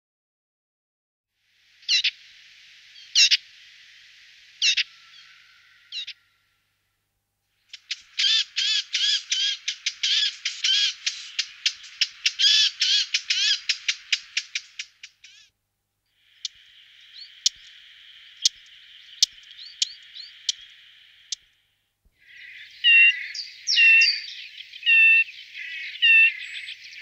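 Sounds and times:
faint hiss: 1.3 - 27.0
bird calling: 1.8 - 6.7, 7.6 - 15.5, 16.1 - 27.0.

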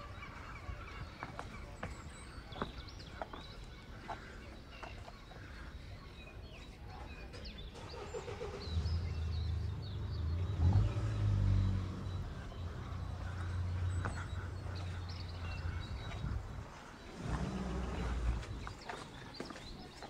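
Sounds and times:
quiet street ambience: 0.0 - 20.0
vehicle engine running: 7.8 - 19.2.

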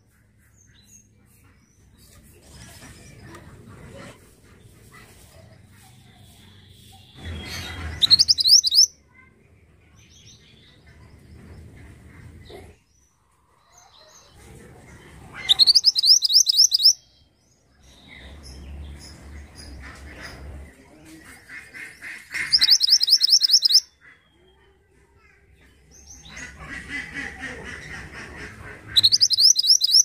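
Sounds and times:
faint bird chirps: 5.7 - 9.3, 15.4 - 17.3, 22.4 - 25.3, 29.0 - 30.0
bird singing fast high trill: 8.0 - 8.9, 15.5 - 17.0, 22.5 - 23.8, 29.0 - 30.0.

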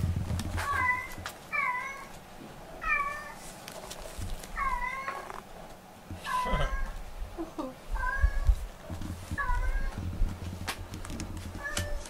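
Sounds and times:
cat meowing: 0.6 - 2.1, 4.6 - 5.3, 6.2 - 7.0, 9.4 - 10.0, 11.6 - 12.0.

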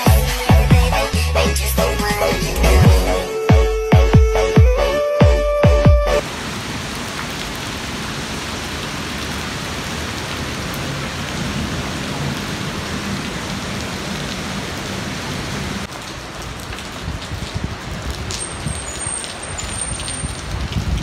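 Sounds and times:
heavy rain on concrete: 6.2 - 21.0.

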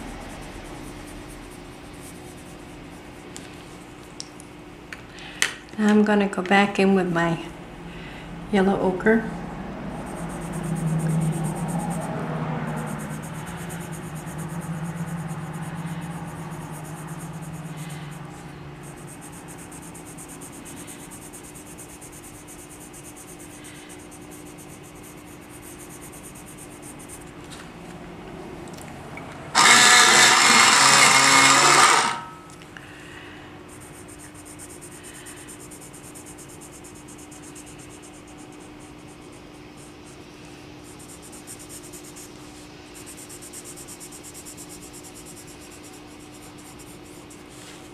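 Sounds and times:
pencil scratching on paper: 0.0 - 4.2, 10.0 - 27.4, 29.6 - 32.3, 33.7 - 47.9
electric pencil sharpener: 12.7 - 27.2, 29.5 - 32.4.

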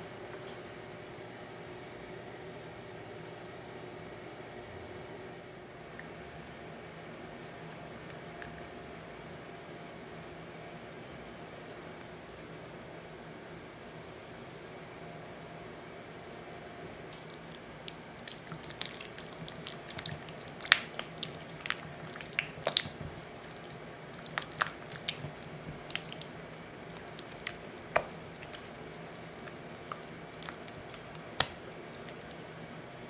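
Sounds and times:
spatula stirring cream in glass bowl: 17.1 - 32.6.

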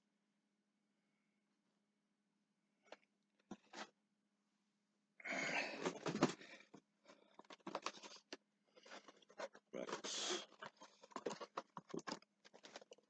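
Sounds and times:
packaging rustling and crackling: 5.8 - 13.0.

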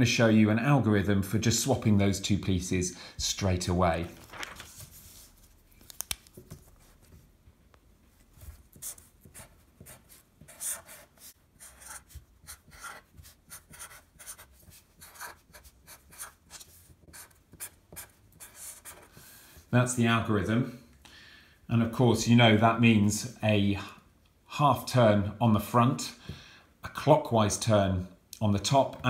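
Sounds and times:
marker scratching on paper: 8.4 - 19.3.

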